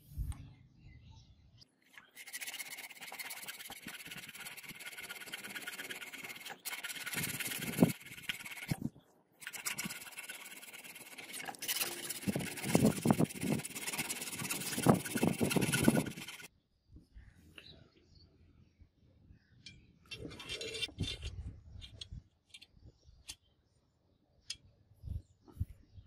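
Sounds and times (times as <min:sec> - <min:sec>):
hand file rasping on brass: 0:02.2 - 0:08.8, 0:09.4 - 0:16.5.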